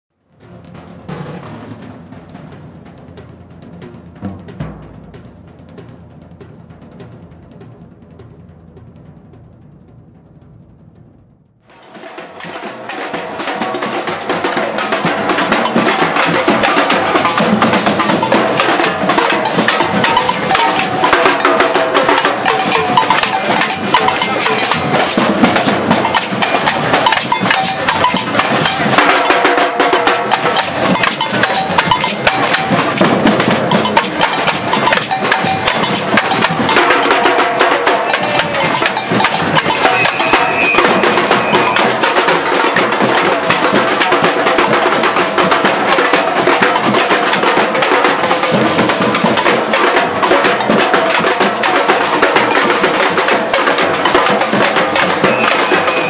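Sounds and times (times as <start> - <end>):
samba drumming: 0.2 - 56.0
metallic ringing accents: 16.8 - 42.2.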